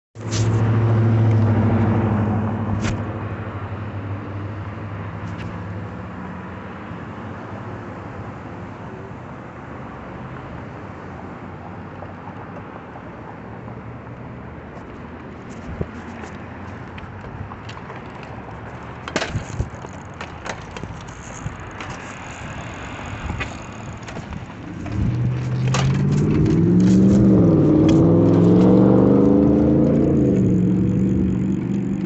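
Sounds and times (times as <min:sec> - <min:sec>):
vehicle engine hum: 0:00.2 - 0:32.0
rushing background noise: 0:13.4 - 0:32.0.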